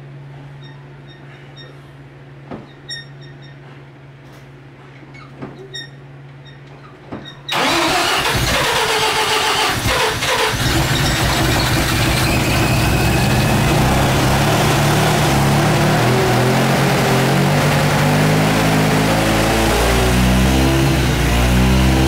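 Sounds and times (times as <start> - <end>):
rotary engine starting and idling: 7.5 - 22.0.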